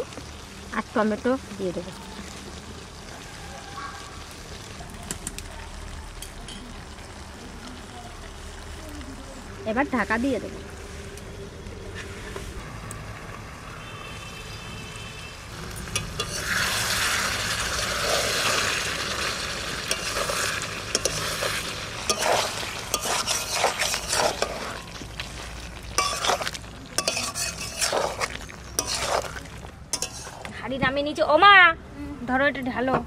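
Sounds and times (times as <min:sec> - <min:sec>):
curry sizzling in metal pan: 0:00.0 - 0:31.2
metal spatula scraping pan: 0:15.9 - 0:18.8, 0:19.8 - 0:30.6.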